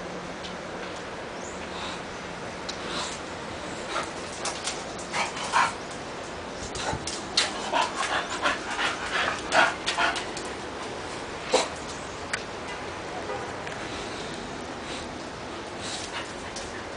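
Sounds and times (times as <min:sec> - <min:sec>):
dogs playing: 0:02.8 - 0:12.4, 0:14.7 - 0:16.9.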